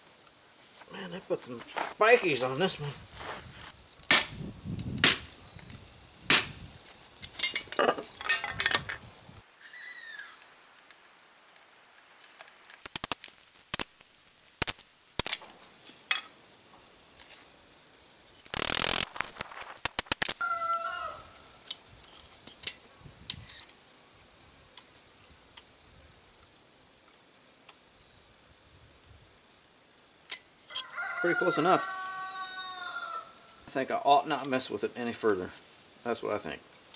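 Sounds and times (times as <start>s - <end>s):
rasping rustle: 0.5s - 4.4s, 5.0s - 20.4s.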